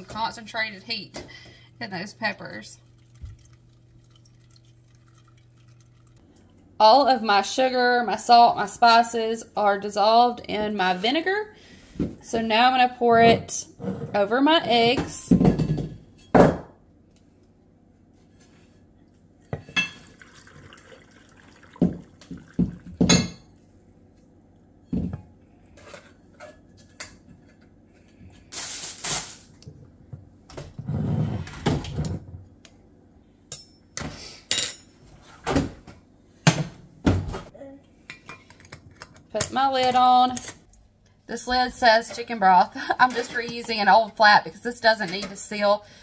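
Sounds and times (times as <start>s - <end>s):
liquid pouring into a jar: 2.6s - 6.6s, 20.0s - 23.1s.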